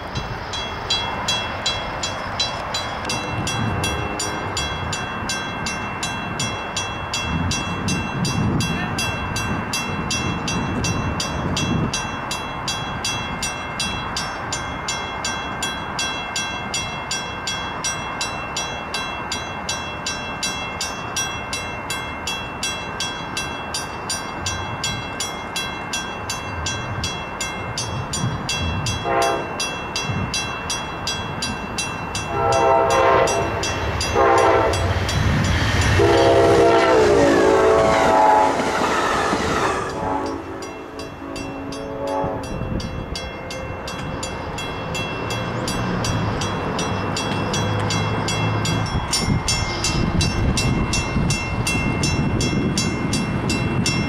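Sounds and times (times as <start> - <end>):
crossing bell ringing: 0.0 - 54.0
train rumbling past: 0.0 - 54.0
train horn blasts: 29.0 - 29.6, 32.3 - 35.0, 35.9 - 42.8.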